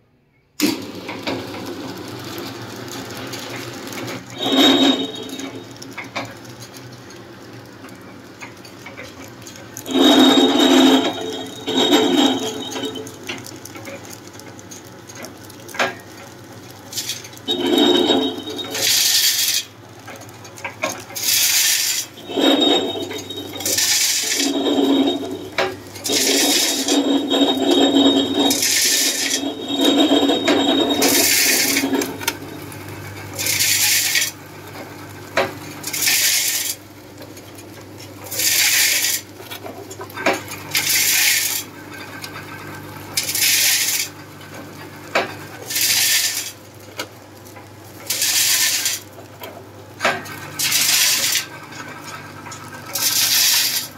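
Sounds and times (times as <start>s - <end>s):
packing machine low hum: 0.6s - 19.3s, 20.0s - 38.4s
rattling hiss bursts: 21.2s - 32.3s.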